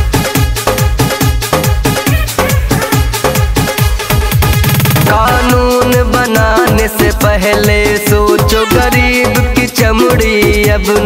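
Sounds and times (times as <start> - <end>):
pounding kick drum: 1.7 - 10.8
fast drum roll: 2.1 - 6.1.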